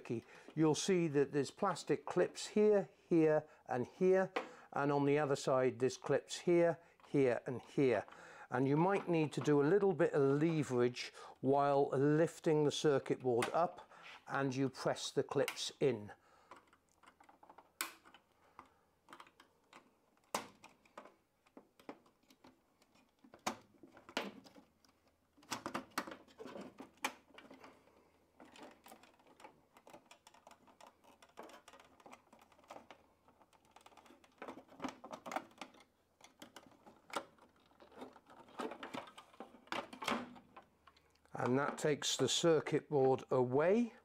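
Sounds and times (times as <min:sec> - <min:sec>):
plastic clicks and scrapes: 0:16.5 - 0:41.8.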